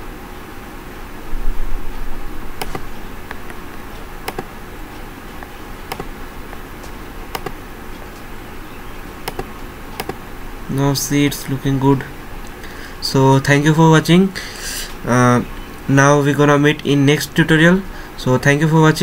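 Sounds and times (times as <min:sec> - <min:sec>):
low hum and hiss: 0:00.0 - 0:19.0
computer mouse clicks: 0:02.6 - 0:03.6, 0:04.2 - 0:04.5, 0:05.4 - 0:06.6, 0:07.3 - 0:08.1, 0:09.2 - 0:10.2.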